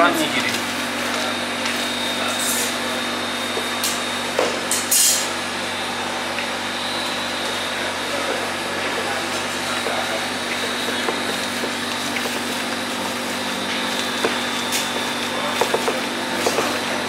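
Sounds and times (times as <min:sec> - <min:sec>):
meat grinder motor humming: 0:05.3 - 0:17.0.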